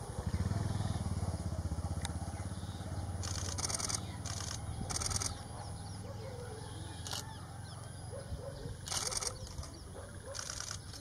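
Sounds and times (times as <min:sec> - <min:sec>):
rapid camera shutter clicks: 0:03.2 - 0:05.5, 0:07.0 - 0:07.3, 0:08.8 - 0:09.7, 0:10.3 - 0:11.0.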